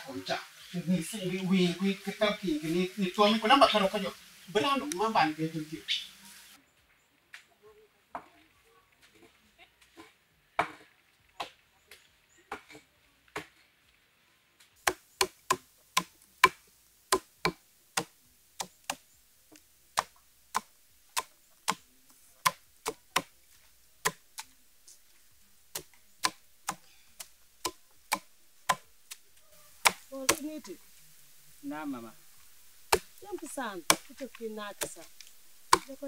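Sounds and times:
stick knocking on nuts: 0:14.8 - 0:23.3, 0:25.7 - 0:29.2, 0:32.9 - 0:33.2, 0:33.8 - 0:36.0.

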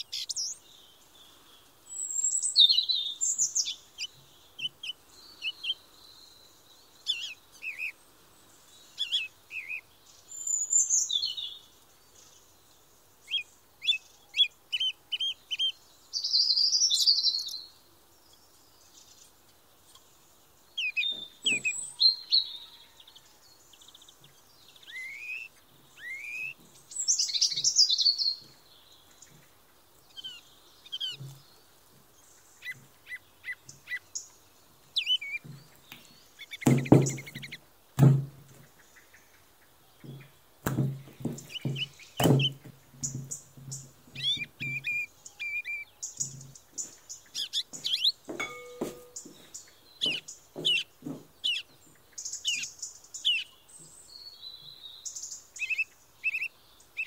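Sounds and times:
small birds chirping: 0:00.0 - 0:57.0
dough thumps and knocks: 0:36.7 - 0:37.4, 0:38.0 - 0:38.5, 0:40.0 - 0:43.3.

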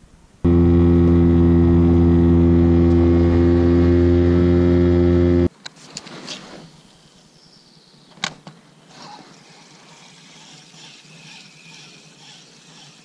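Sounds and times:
outboard motor droning: 0:00.4 - 0:05.5, 0:09.2 - 0:13.0.

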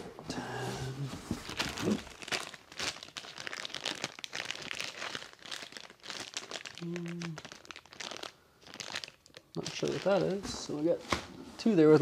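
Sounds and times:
plastic bag crinkling: 0:01.4 - 0:10.7.

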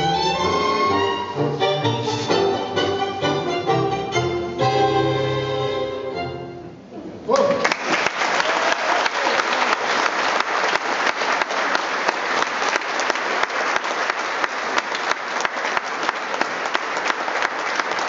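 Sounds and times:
audience applauding: 0:07.3 - 0:18.0.

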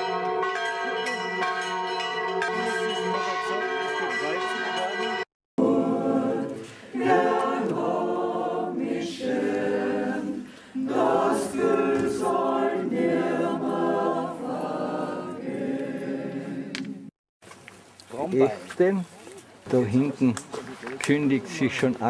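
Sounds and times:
group singing unaccompanied: 0:05.6 - 0:17.1.

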